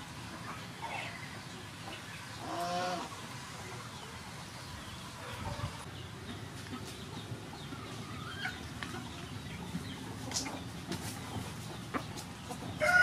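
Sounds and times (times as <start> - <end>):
chickens clucking: 0.0 - 13.0
loud drawn-out chicken call: 12.8 - 13.0.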